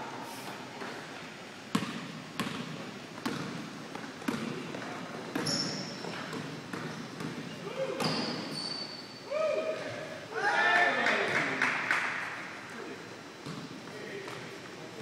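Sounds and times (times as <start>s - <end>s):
basketball bouncing on hardwood floor: 1.7s - 7.4s
high shoe squeak: 5.4s - 7.2s, 8.0s - 9.3s.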